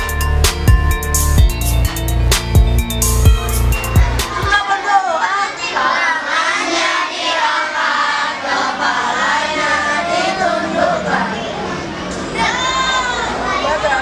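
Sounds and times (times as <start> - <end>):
children chanting a prayer: 4.2 - 14.0.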